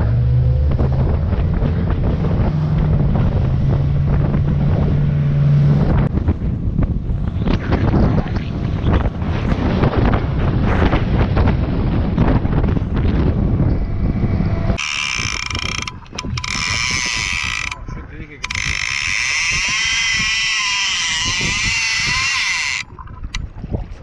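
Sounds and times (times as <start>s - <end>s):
wind buffeting microphone: 0.0s - 24.0s
fishing reel buzzing: 14.8s - 23.4s.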